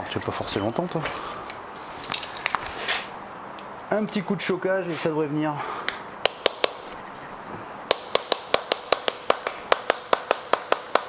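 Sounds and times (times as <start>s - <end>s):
hammer tapping on metal: 6.2s - 6.8s, 7.9s - 11.0s.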